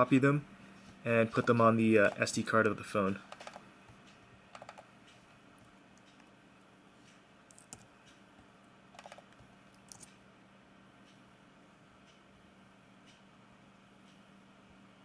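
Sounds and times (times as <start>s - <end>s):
faint steady hum: 0.0s - 15.0s
mouse and keyboard clicks: 3.3s - 3.6s, 4.5s - 4.9s, 9.0s - 10.2s.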